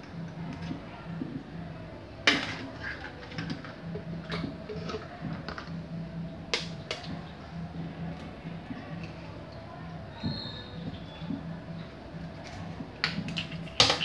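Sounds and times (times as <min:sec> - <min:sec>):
kitchen containers knocking: 0:13.0 - 0:14.0.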